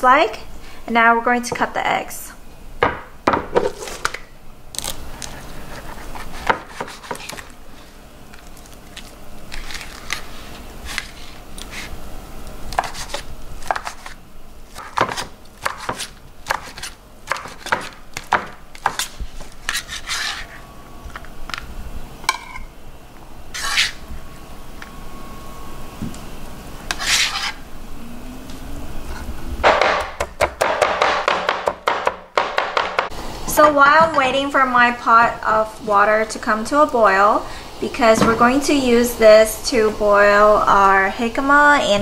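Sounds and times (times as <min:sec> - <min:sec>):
knife chopping on cutting board: 0:06.4 - 0:07.4, 0:14.8 - 0:19.1, 0:29.7 - 0:33.1.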